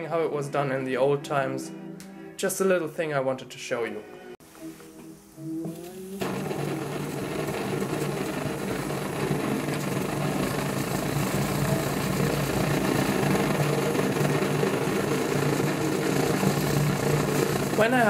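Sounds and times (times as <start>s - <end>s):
blowtorch flame rushing: 5.8s - 18.0s.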